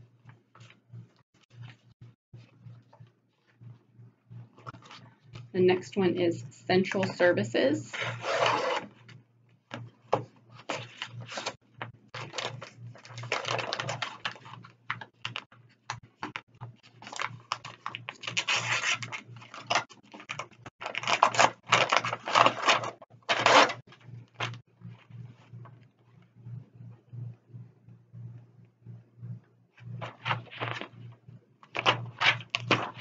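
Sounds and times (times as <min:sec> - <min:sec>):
paper rustling: 0:10.5 - 0:11.6, 0:12.2 - 0:15.4, 0:30.0 - 0:33.0.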